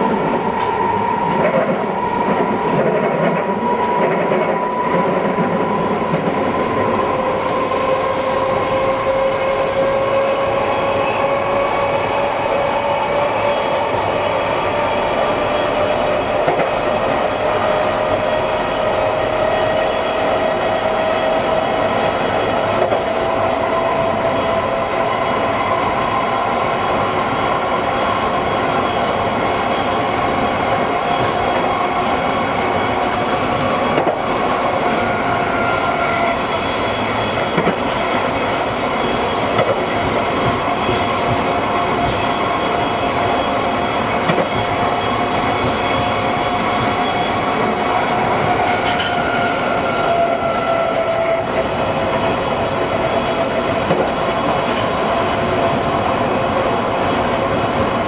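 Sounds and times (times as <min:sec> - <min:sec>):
rail joint clicks: 0:00.0 - 0:06.5, 0:15.2 - 0:17.8, 0:22.4 - 0:24.2, 0:30.0 - 0:35.2, 0:35.8 - 0:56.0
train traction motors whining: 0:00.0 - 0:58.0.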